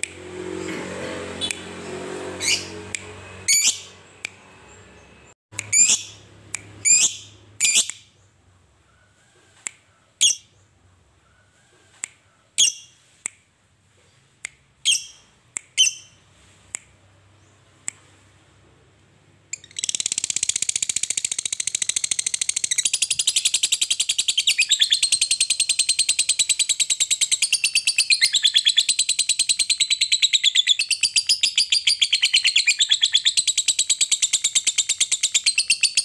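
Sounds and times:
lovebird squawking and chirping: 2.4s - 2.8s, 3.5s - 5.0s, 5.6s - 8.1s, 10.2s - 10.5s, 12.6s - 13.0s, 14.8s - 16.2s, 19.5s - 36.0s.

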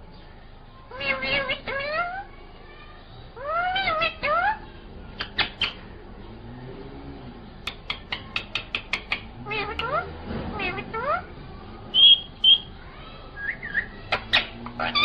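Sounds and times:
parakeet calls: 0.9s - 2.3s, 3.4s - 5.9s, 13.4s - 15.0s.

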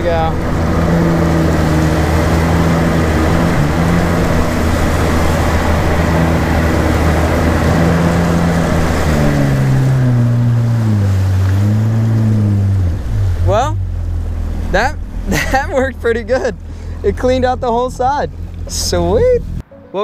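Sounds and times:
jet ski engine running: 0.0s - 19.6s
water rushing and spraying: 0.0s - 19.6s.

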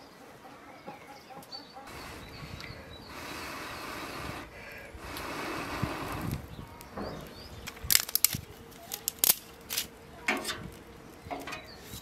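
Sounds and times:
twigs snapping: 7.6s - 12.0s.

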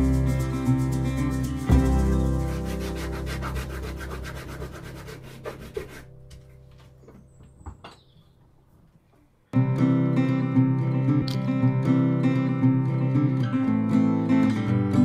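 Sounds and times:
hand sanding wood: 1.4s - 6.2s.

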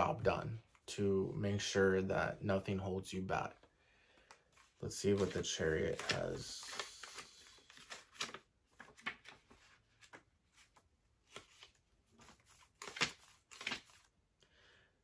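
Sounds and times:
book pages flicking and rustling: 4.5s - 14.1s.

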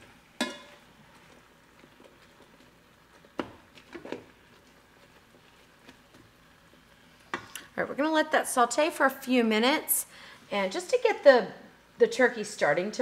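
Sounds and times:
soft squishing of food: 1.0s - 7.7s.

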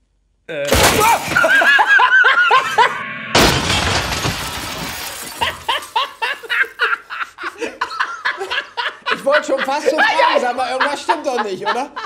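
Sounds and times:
laughter: 1.2s - 3.0s, 5.4s - 12.0s
cannon bang: 3.2s - 4.6s
glass shattering and tinkling: 3.4s - 6.5s.

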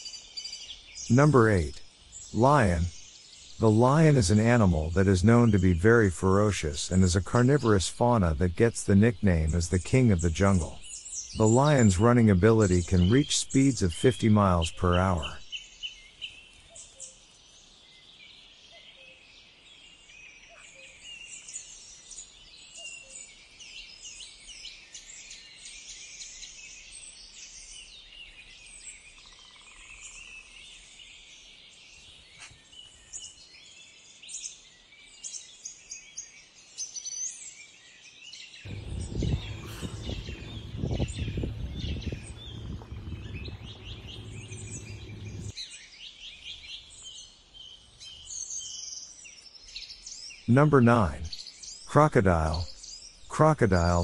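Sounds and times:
small birds chirping and singing: 0.0s - 54.0s
low rumble: 38.7s - 45.5s.

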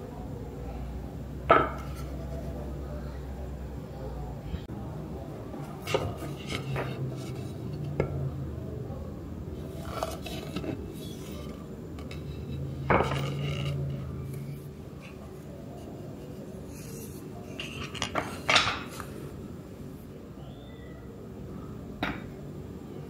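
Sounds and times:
wooden tray knocking on table: 1.5s - 1.9s.

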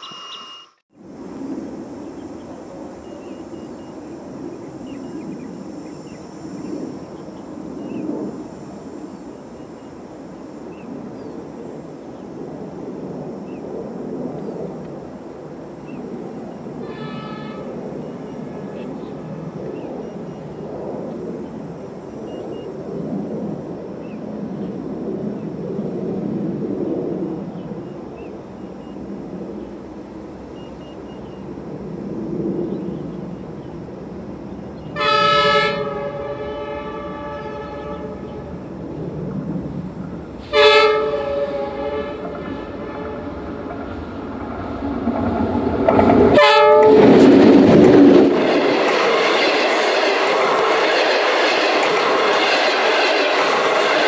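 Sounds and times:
faint chirps: 0.0s - 0.8s, 2.1s - 8.2s
short high tone: 0.0s - 0.8s
locomotive rumble: 32.9s - 54.0s.

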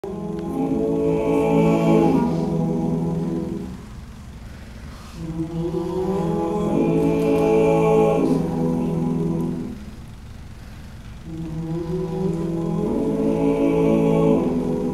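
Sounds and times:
male group singing in harmony: 0.0s - 4.0s, 5.1s - 10.0s, 11.2s - 14.9s.

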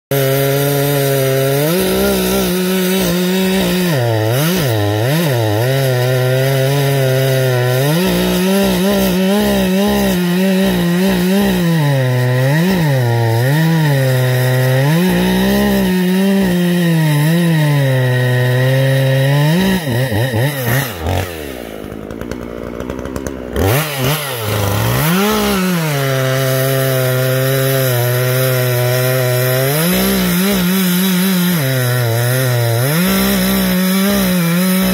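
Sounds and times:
chainsaw cutting log: 0.1s - 34.9s.

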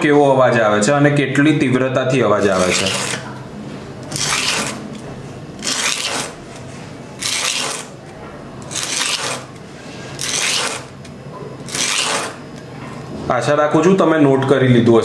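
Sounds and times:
needle scratching sandpaper: 2.4s - 3.2s, 4.1s - 4.8s, 5.6s - 6.4s, 7.2s - 7.9s, 8.7s - 9.6s, 10.2s - 10.9s, 11.7s - 12.4s.

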